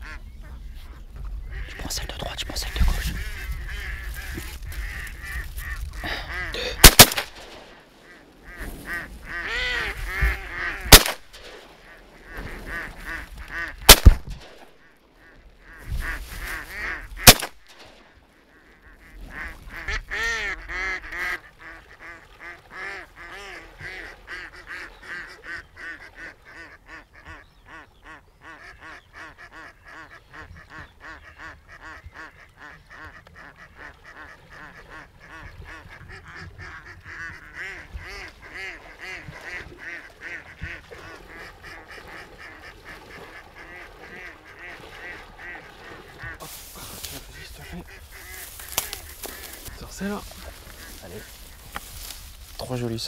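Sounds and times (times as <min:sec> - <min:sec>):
ducks quacking: 0:00.0 - 0:53.0
shotgun shots: 0:06.8 - 0:07.8, 0:10.9 - 0:11.8, 0:13.9 - 0:14.7, 0:17.2 - 0:18.0.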